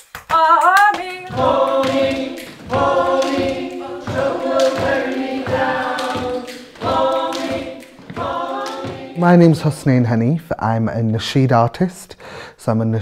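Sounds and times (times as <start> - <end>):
young voices singing folk song: 0.3 - 10.0.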